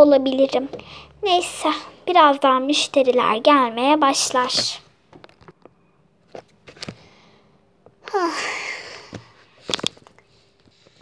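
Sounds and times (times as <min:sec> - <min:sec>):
phone being handled: 0:04.6 - 0:07.0
breathy sigh: 0:08.0 - 0:09.4.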